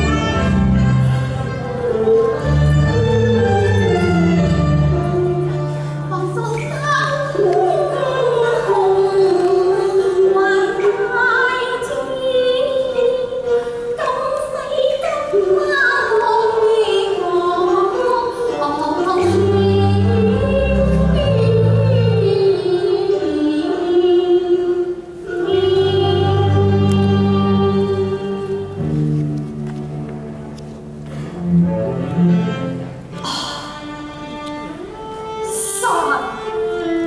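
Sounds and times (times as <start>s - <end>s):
instrumental accompaniment: 0.0s - 37.0s
woman singing opera: 6.1s - 28.8s, 35.4s - 37.0s.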